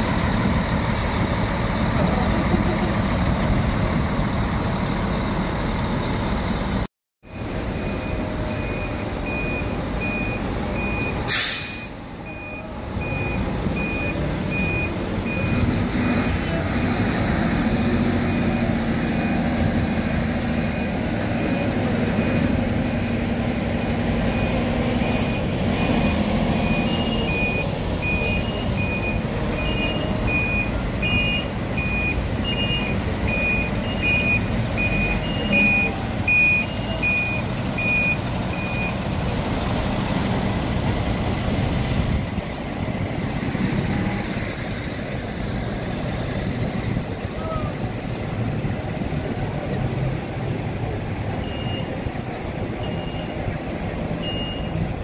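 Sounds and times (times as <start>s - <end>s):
reversing alarm beeping: 7.3s - 17.1s, 24.2s - 39.0s, 51.4s - 52.0s, 52.6s - 53.4s, 54.2s - 54.8s.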